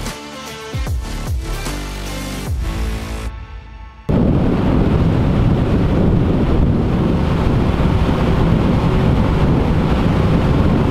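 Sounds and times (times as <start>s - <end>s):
boat engine running: 4.1s - 10.9s
wind buffeting microphone: 4.1s - 10.9s.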